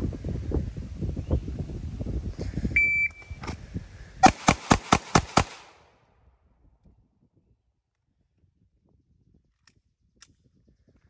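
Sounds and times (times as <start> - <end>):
shot timer beep: 2.8 - 3.4
pistol shots: 4.2 - 5.8.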